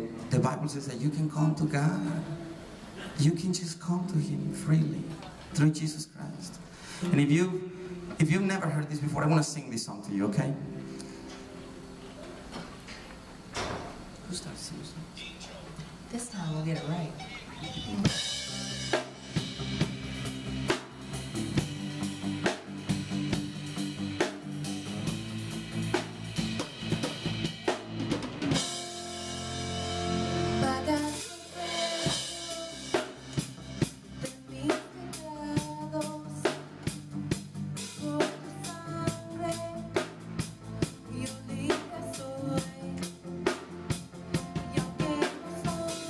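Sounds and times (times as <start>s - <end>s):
keyboard chords: 16.7s - 46.0s
drum beat: 16.8s - 29.8s
electric bass: 17.8s - 46.0s
woman singing: 30.4s - 33.2s, 34.2s - 36.6s, 38.0s - 40.1s, 41.0s - 43.2s, 44.4s - 46.0s.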